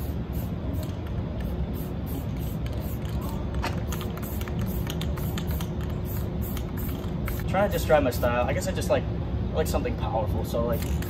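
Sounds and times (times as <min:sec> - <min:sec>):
spray paint can hissing: 0:00.0 - 0:07.5
steady low rumble: 0:00.0 - 0:11.0.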